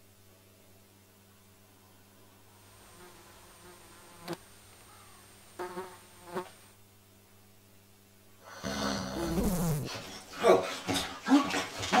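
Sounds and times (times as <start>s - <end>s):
housefly buzzing: 2.9s - 6.8s, 8.5s - 10.1s.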